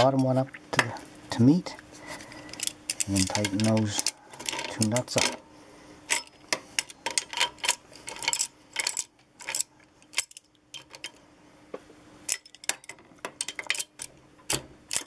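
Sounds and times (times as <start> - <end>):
wrench clinking on metal: 2.4 - 5.4, 6.1 - 11.2, 12.3 - 15.0.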